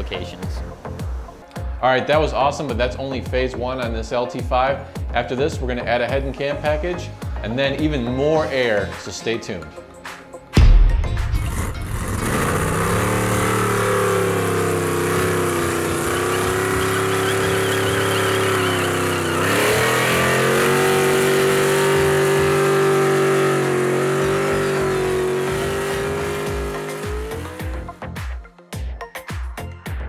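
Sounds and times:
truck engine revving: 10.9s - 28.0s
tyres spinning: 11.9s - 27.5s.

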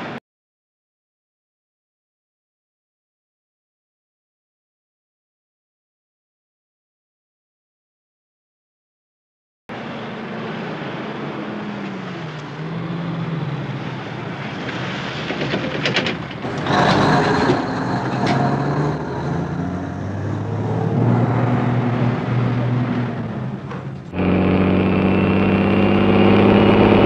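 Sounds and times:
diesel truck driving past: 9.7s - 27.0s.

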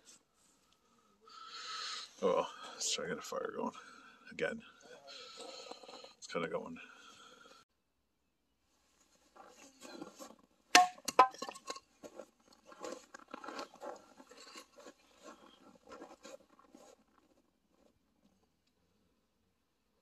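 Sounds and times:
short crunches: 12.0s - 17.9s.

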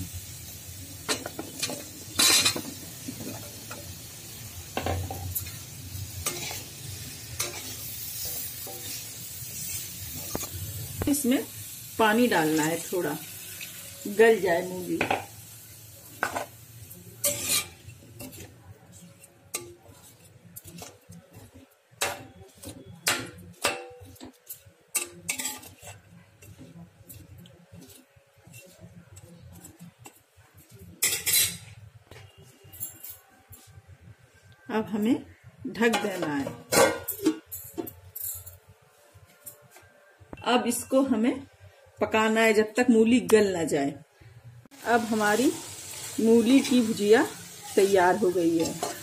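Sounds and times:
food sizzling in hot oil: 0.0s - 31.7s, 44.7s - 49.0s
metal spatula scraping a pan: 1.1s - 3.9s, 4.8s - 10.5s, 16.2s - 32.4s, 45.2s - 49.0s
spatula clinking against a pan: 17.2s - 30.2s, 48.6s - 49.0s.

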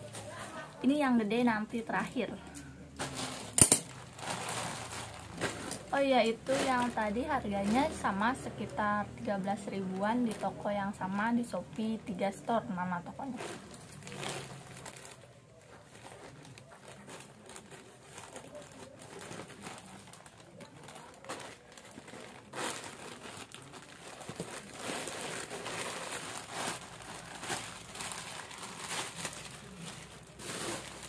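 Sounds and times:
plastic wrapping crinkling: 0.0s - 31.0s
scissors cutting plastic: 3.0s - 5.9s.

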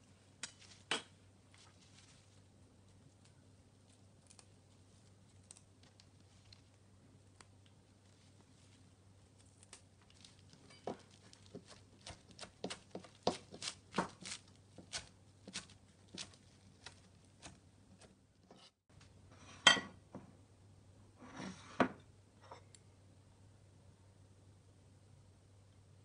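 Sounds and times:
knife chopping on cutting board: 10.9s - 18.7s.

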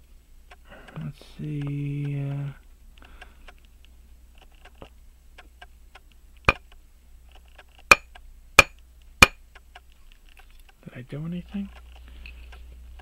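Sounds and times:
faint small clicks: 2.9s - 8.3s
hammer tapping metal punch: 7.9s - 9.4s.

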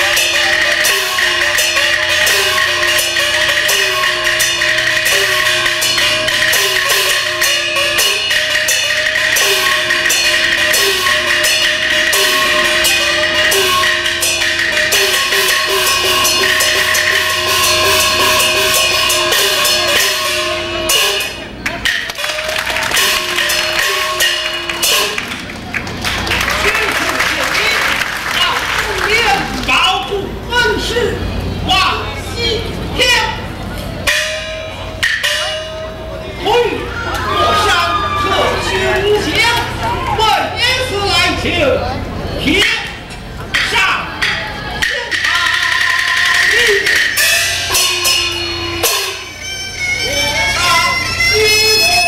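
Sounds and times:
clapper and drum strokes: 0.0s - 29.8s.

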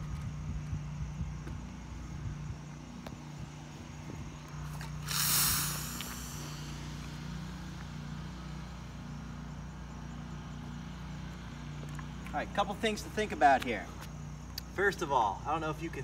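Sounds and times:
steady low hum: 0.0s - 16.0s
foam hissing whoosh: 5.0s - 7.6s.

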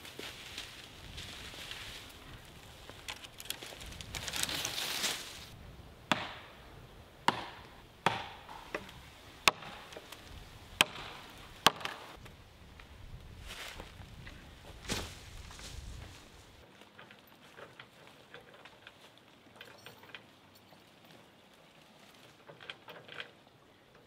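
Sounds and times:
branches rustling: 0.0s - 6.8s, 8.1s - 23.5s
axe chopping log: 6.1s - 6.5s, 7.2s - 10.1s, 10.8s - 12.1s.

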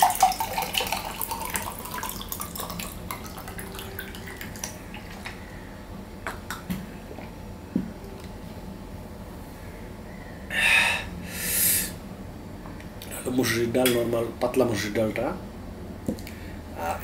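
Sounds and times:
water poured into a glass: 0.0s - 5.1s.

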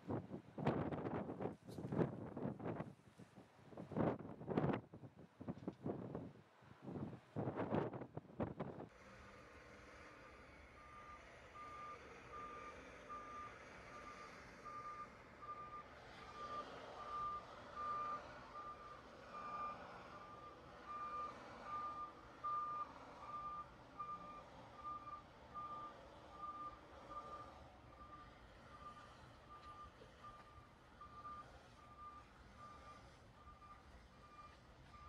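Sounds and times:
vehicles running noise: 7.9s - 35.0s
reversing alarm beeping: 10.8s - 35.0s.

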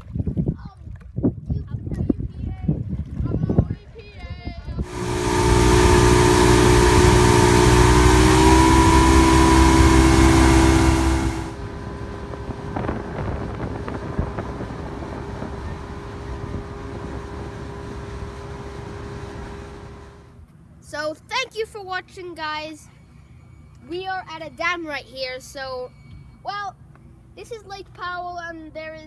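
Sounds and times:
wind on microphone: 0.0s - 18.4s
motorboat engine: 4.8s - 20.4s.

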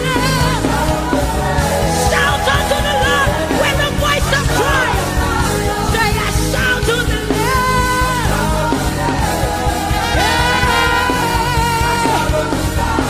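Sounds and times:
gospel band playing: 0.0s - 13.0s
trumpet holding high notes: 9.8s - 12.4s.

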